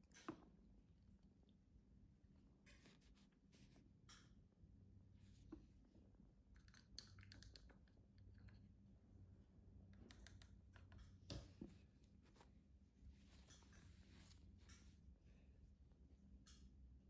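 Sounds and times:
faint low hum: 0.0 - 17.0
soft clicks and scratches: 9.8 - 15.2.

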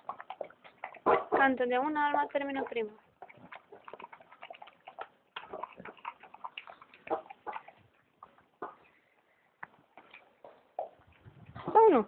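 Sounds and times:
dog eating from metal bowl: 0.0 - 9.0.

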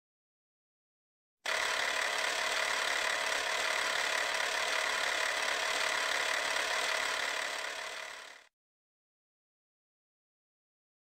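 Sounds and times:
film projector whirring rattle: 1.5 - 8.5.

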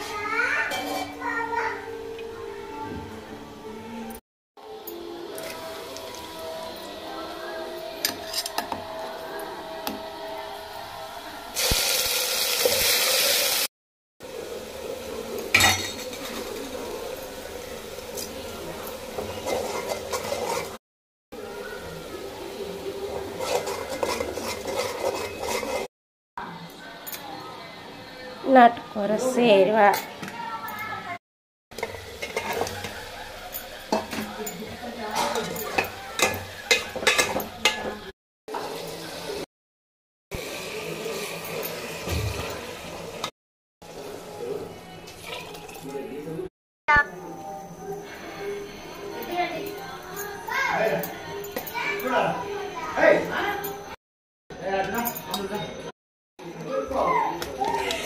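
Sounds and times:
chicken sizzling in a pot: 4.7 - 20.8, 21.4 - 25.9, 31.8 - 39.5, 40.3 - 46.0
paste sizzling in hot oil: 11.5 - 13.7
spatula stirring and scraping: 18.8 - 20.8, 23.0 - 25.9, 31.8 - 38.8
spatula clinking against pot: 31.8 - 38.0.

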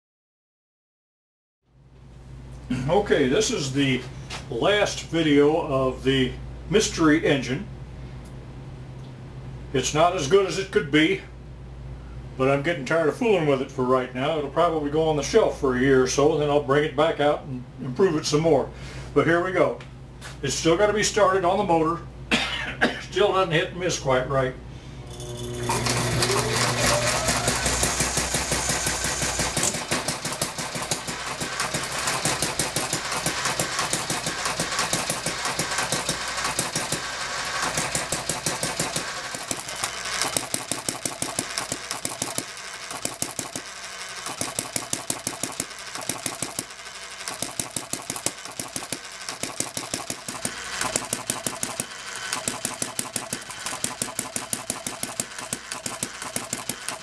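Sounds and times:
electric motor hum: 24.9 - 57.0
model engine clattering: 26.3 - 57.0.

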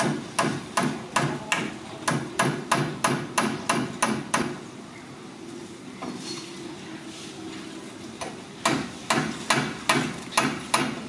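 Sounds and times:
fast sharp knocks: 0.0 - 4.6, 8.6 - 11.0.

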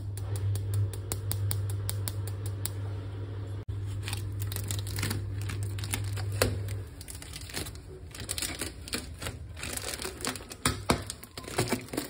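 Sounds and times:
steady low hum: 0.0 - 11.4
plastic film crinkling: 3.8 - 12.0.

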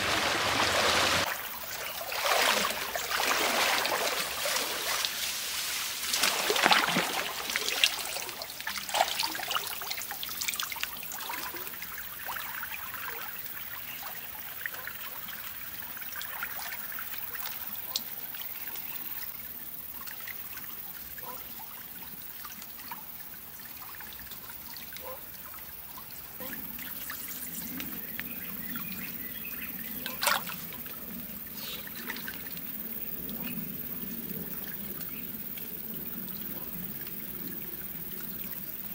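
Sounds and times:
water splashing around wading legs: 0.0 - 11.4, 30.0 - 30.9
trickle of flowing water: 0.0 - 38.9.

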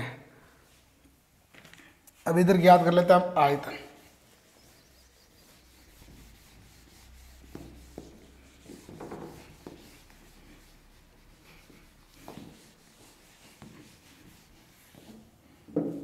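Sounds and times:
marker writing on whiteboard: 4.0 - 15.3
duster rubbing a whiteboard: 4.0 - 15.6.

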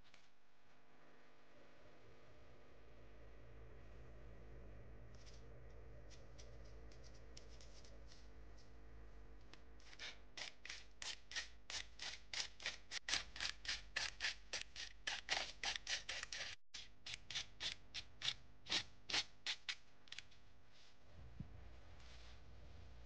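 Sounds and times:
knife blade scraping paper: 9.8 - 20.2.

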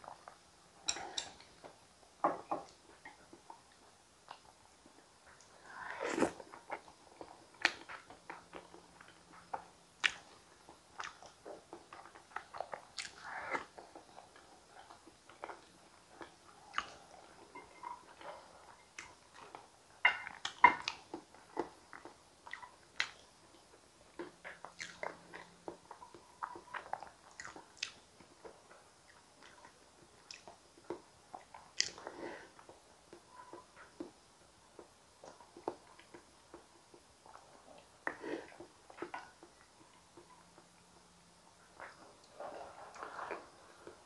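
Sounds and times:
wet mouth eating sounds: 11.0 - 17.3.

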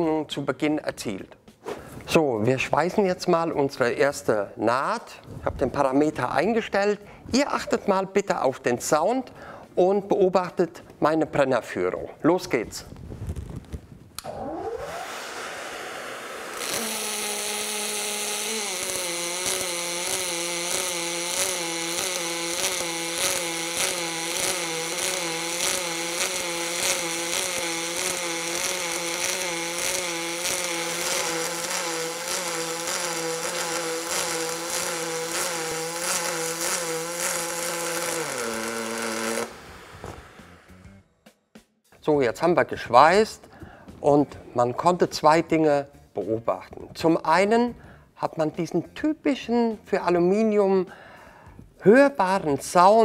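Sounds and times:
welding arc humming: 14.2 - 41.0
faint welding crackle: 16.6 - 40.6.

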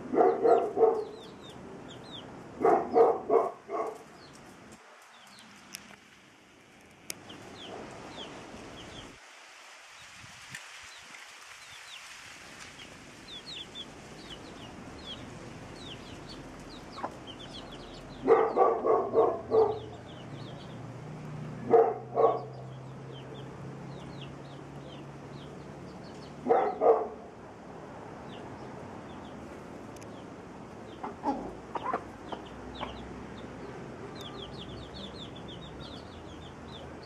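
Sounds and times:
chicks peeping: 12.8 - 20.8, 30.8 - 37.0.

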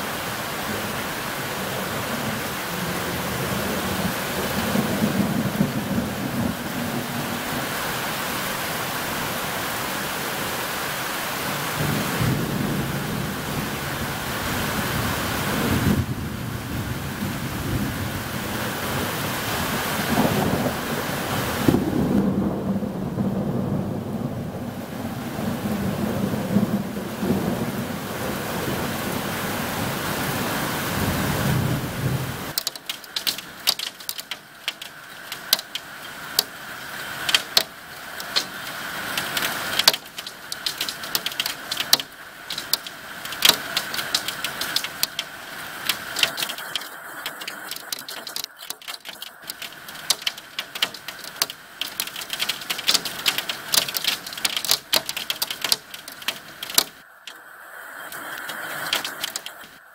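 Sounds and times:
heavy rain: 0.0 - 59.9
low rumble of thunder: 1.5 - 7.8, 11.7 - 19.1, 20.1 - 29.4
hailstones striking: 32.5 - 57.4, 58.1 - 59.8.

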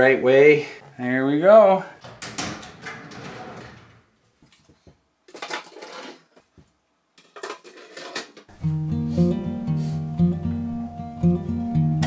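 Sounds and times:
wooden drawers rattling and clicking: 2.0 - 4.1
drawer sliding scrape: 2.6 - 4.1.

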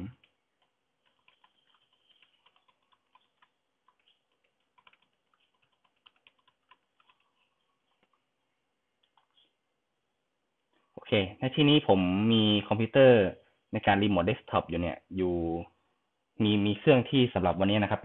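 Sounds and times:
faint keyboard typing: 0.0 - 9.6.

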